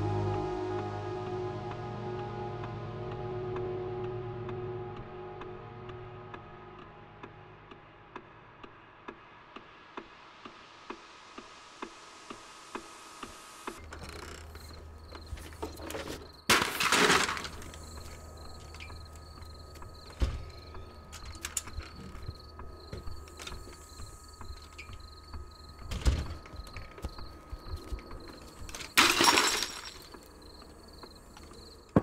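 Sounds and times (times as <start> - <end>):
low hum: 0.0 - 9.3, 13.7 - 32.0
insects chirping: 12.5 - 32.0.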